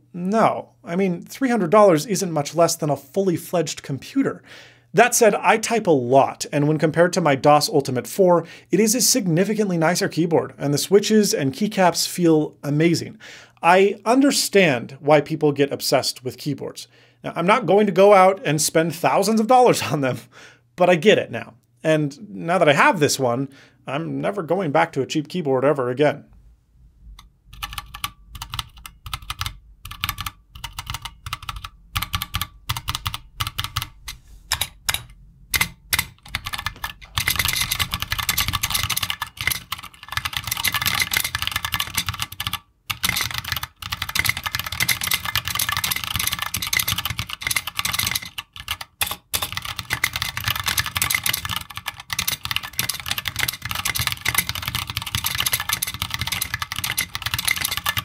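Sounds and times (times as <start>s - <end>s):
mechanical keyboard typing: 27.5s - 58.0s.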